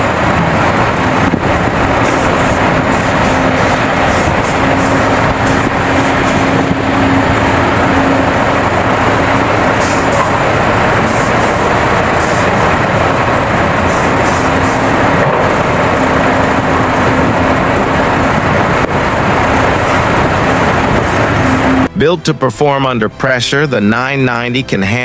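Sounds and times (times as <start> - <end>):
excavator diesel engine running: 0.0 - 24.1.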